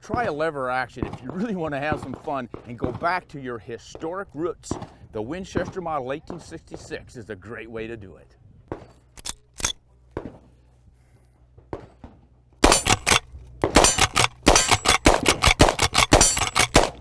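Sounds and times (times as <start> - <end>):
rifle lever clacking: 9.2 - 9.8, 12.6 - 17.0
rifle mechanical clicks: 9.2 - 9.8, 12.6 - 17.0
rifle shots: 12.6 - 17.0.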